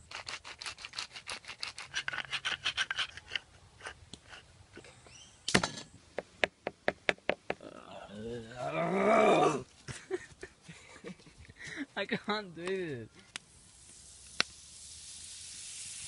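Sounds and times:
wooden spice mill grinding: 0:00.0 - 0:04.8.

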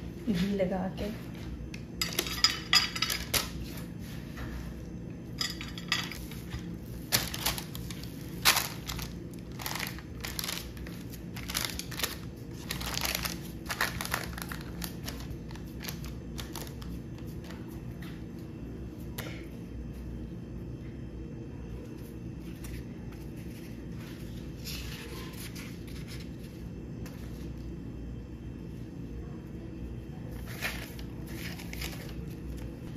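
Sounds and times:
paper crinkling: 0:06.2 - 0:17.6, 0:30.3 - 0:32.9.

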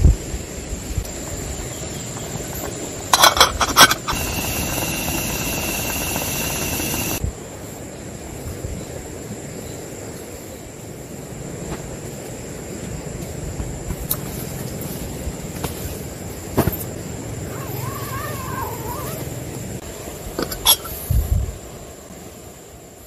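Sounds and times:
outdoor background: 0:00.0 - 0:23.0
stove hiss with whistle: 0:03.1 - 0:07.3.

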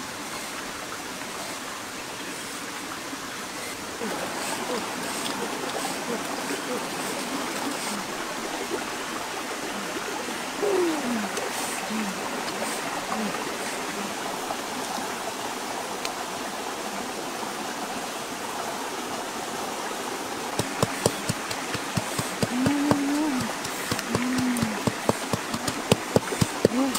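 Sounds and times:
rushing water noise: 0:00.0 - 0:26.9
low hoot-like sounds: 0:03.6 - 0:08.8, 0:09.6 - 0:14.5, 0:22.4 - 0:25.7.

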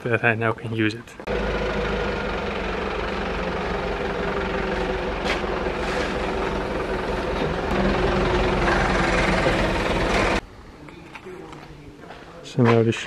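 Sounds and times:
forklift engine running: 0:01.2 - 0:10.4.

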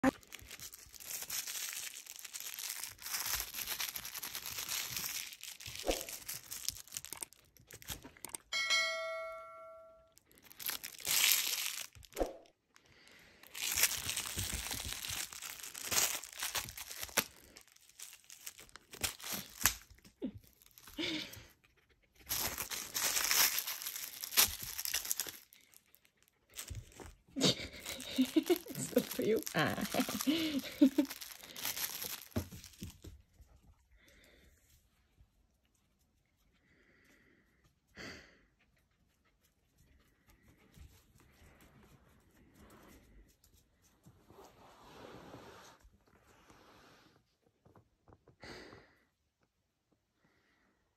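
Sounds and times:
plastic wrapper crackling: 0:00.0 - 0:08.4, 0:10.2 - 0:12.2, 0:12.8 - 0:21.2, 0:22.2 - 0:33.2
ringing chime: 0:08.5 - 0:10.2.

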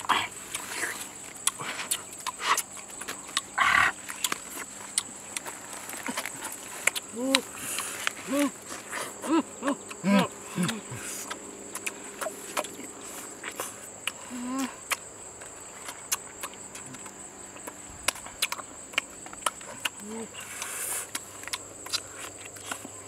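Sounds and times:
chewing and lip-smacking: 0:00.0 - 0:23.0
insects chirring: 0:00.0 - 0:23.0
person humming with enjoyment: 0:07.1 - 0:11.4, 0:14.2 - 0:14.9.

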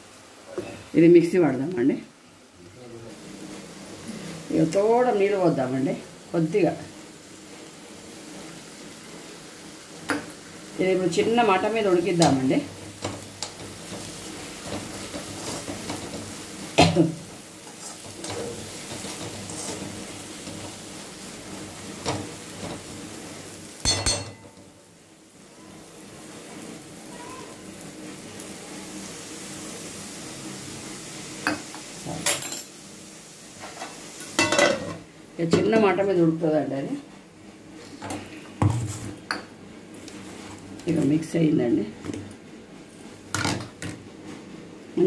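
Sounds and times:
leaves sizzling in oil: 0:00.0 - 0:45.0
spatula scraping pan: 0:17.6 - 0:20.9.

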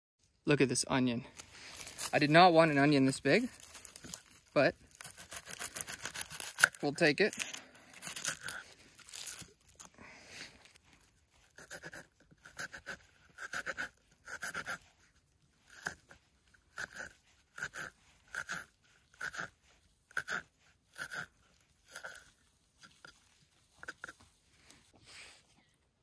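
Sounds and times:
knife cutting onion: 0:11.4 - 0:14.8.

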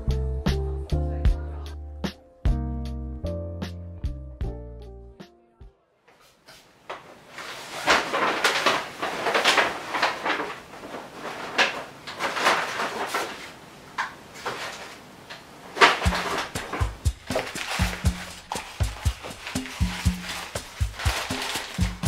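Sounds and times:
bass-heavy music beat: 0:00.0 - 0:05.7, 0:16.1 - 0:22.0
paper bag rustling and crinkling: 0:06.9 - 0:22.0.

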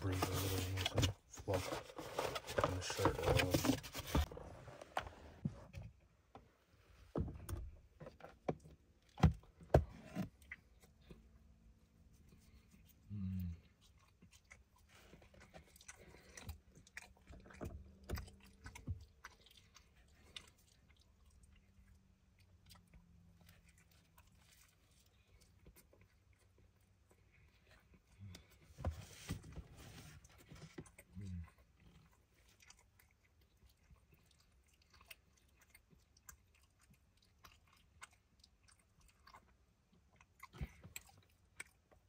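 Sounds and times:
person chewing pizza: 0:08.3 - 0:28.8, 0:29.9 - 0:42.0.

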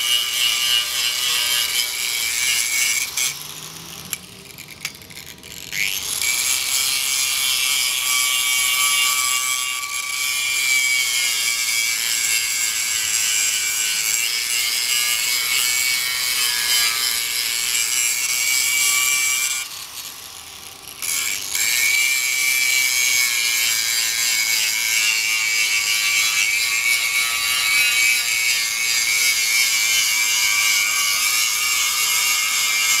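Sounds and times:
grinding disc scraping steel: 0:00.0 - 0:20.2
angle grinder whine: 0:00.0 - 0:33.0.

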